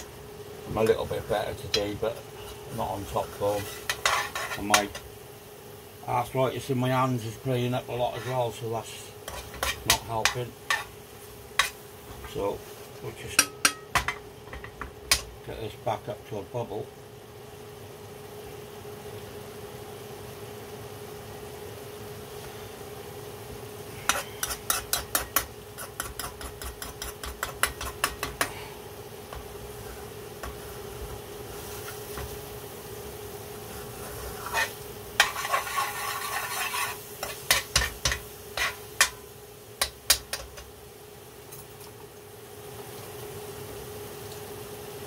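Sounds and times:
sauce sizzling: 0:00.0 - 0:45.0
steady hum: 0:00.0 - 0:45.0
metal spoon scraping pan: 0:01.7 - 0:05.1, 0:08.0 - 0:08.6, 0:09.2 - 0:11.0, 0:11.6 - 0:12.4, 0:24.0 - 0:28.5, 0:33.8 - 0:39.2.

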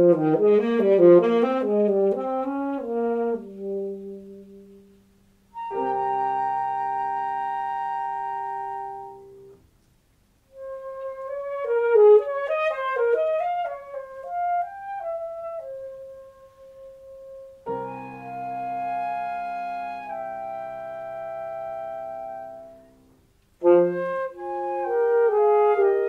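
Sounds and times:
woodwind run of notes: 0:05.6 - 0:09.5, 0:10.5 - 0:22.9, 0:23.6 - 0:26.0
chamber music ensemble: 0:05.6 - 0:09.6.

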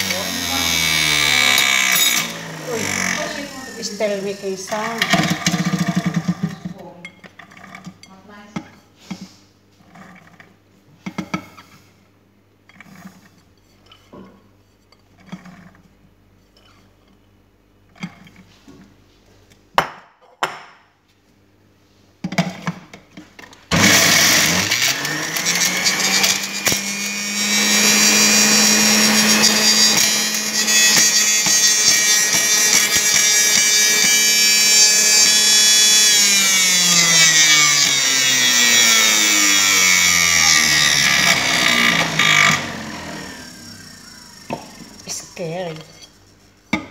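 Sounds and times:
juicer motor whining and grinding: 0:00.0 - 0:06.8, 0:23.7 - 0:45.8.

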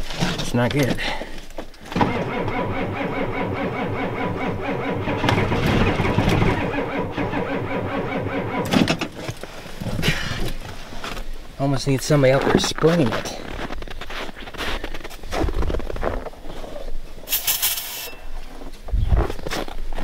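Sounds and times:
diesel engine cranking on starter: 0:01.9 - 0:09.6.

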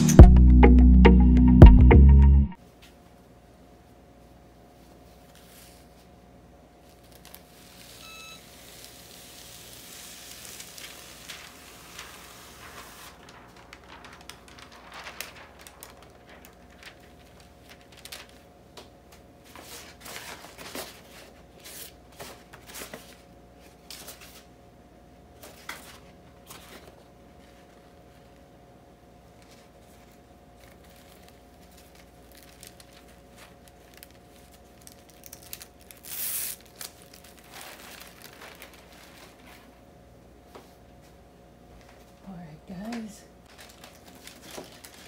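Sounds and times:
plastic tape peeling crackle: 0:06.8 - 0:08.0, 0:08.6 - 0:21.0, 0:29.4 - 0:39.8, 0:43.4 - 0:45.0.

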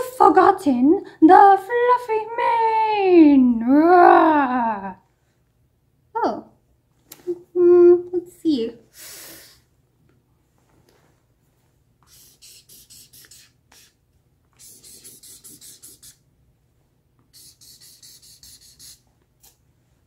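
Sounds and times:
marker scratching on paper: 0:12.0 - 0:16.2, 0:17.3 - 0:19.6.

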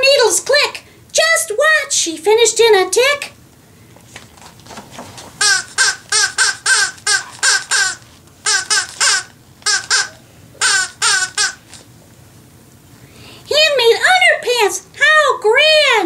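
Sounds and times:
person making squeaky sing-song syllables: 0:05.4 - 0:11.8.

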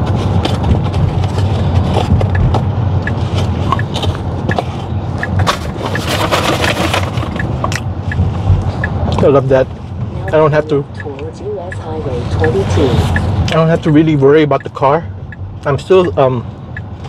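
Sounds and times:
road and tyre noise in car: 0:00.0 - 0:17.0.

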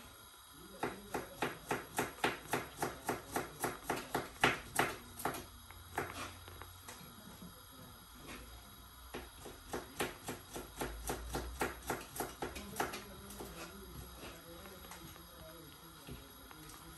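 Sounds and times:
knife chopping on a cutting board: 0:00.8 - 0:06.4, 0:09.1 - 0:14.3.

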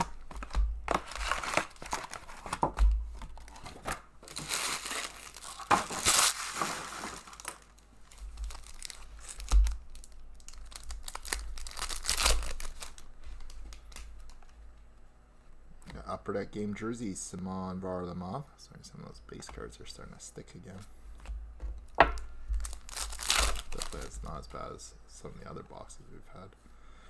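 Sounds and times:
foil wrappers torn and crinkled: 0:00.0 - 0:14.4, 0:22.6 - 0:24.4.

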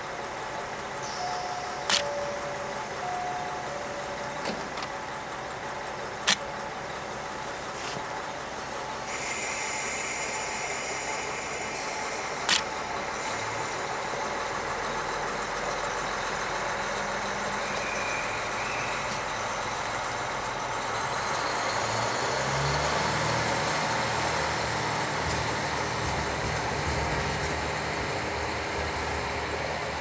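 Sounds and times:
railcar diesel engine running: 0:00.0 - 0:30.0
sharp click: 0:01.9 - 0:02.1, 0:06.2 - 0:06.5, 0:12.5 - 0:12.7.

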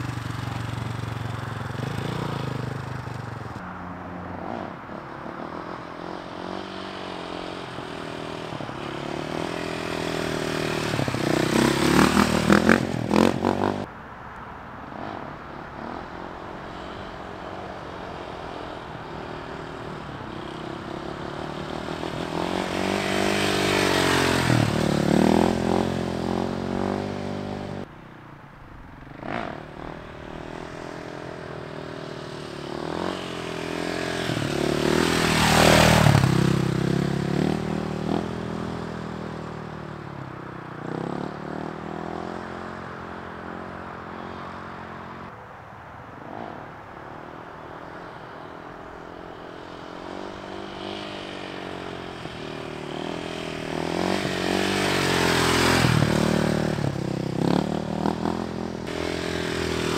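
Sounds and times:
dirt bike engine revving: 0:00.0 - 0:03.6, 0:04.4 - 0:13.9, 0:15.0 - 0:27.9, 0:29.1 - 0:39.7, 0:49.3 - 0:59.9.

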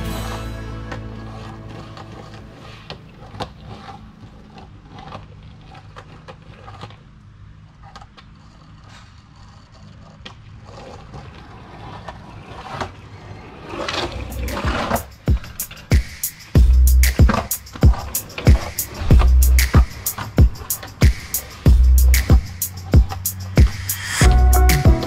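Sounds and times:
skateboard wheels rolling on concrete: 0:00.0 - 0:25.0
skateboard clicks and knocks: 0:00.8 - 0:16.4, 0:17.1 - 0:25.0.

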